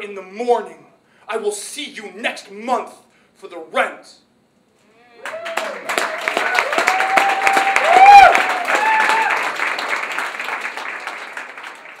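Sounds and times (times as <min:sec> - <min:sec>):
crowd whooping and cheering: 0:05.0 - 0:10.1
audience applauding: 0:05.2 - 0:12.0.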